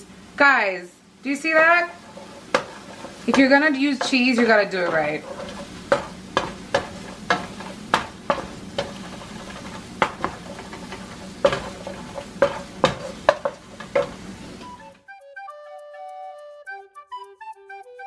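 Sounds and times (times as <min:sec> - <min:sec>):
faint sizzle: 0:00.0 - 0:14.9
wooden spoon tapping a pan: 0:01.9 - 0:14.3.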